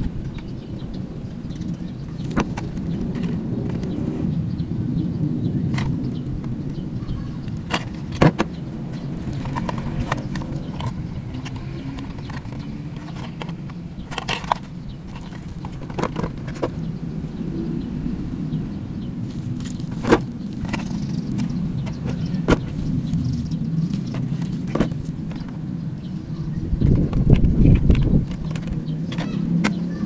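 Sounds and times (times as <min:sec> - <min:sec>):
steady low rumble: 0:00.0 - 0:29.1
plastic handling clicks and knocks: 0:02.2 - 0:04.0, 0:07.5 - 0:16.8, 0:19.6 - 0:22.8, 0:24.0 - 0:25.6, 0:26.9 - 0:29.8.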